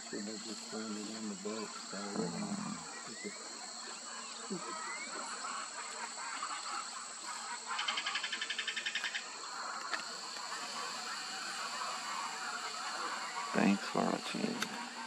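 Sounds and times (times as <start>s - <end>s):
bird chirps: 0.1s - 7.0s.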